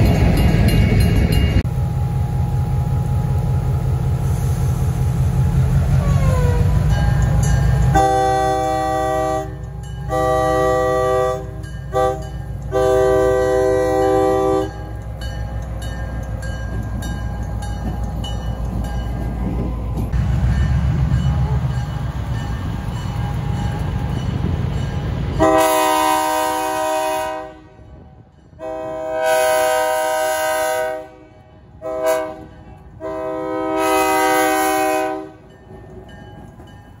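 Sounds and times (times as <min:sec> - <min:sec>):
diesel locomotive engine drone: 0:00.0 - 0:37.0
locomotive air horn blasts: 0:07.9 - 0:14.9, 0:25.4 - 0:35.4.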